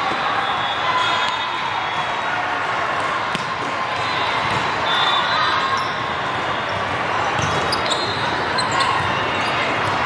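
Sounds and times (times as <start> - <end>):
crowd chatter: 0.0 - 10.0
volleyballs being hit and bouncing: 3.0 - 4.8.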